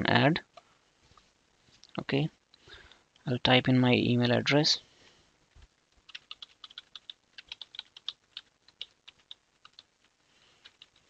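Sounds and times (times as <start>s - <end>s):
typing on computer keyboard: 6.0s - 9.9s, 10.6s - 11.0s.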